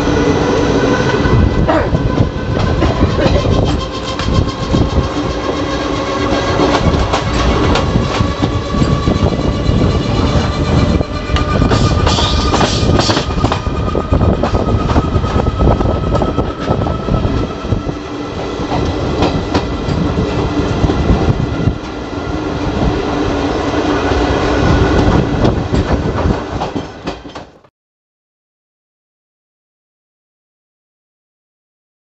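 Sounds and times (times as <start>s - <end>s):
train rumble: 0.0s - 27.7s
wheels clacking over rail joints: 2.0s - 17.6s, 24.9s - 27.7s.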